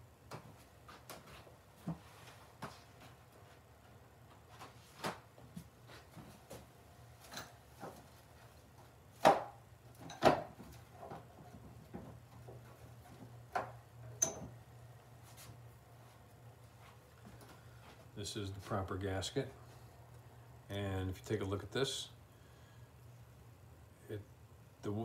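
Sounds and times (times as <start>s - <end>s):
parts knocking and clattering: 9.4s - 14.6s.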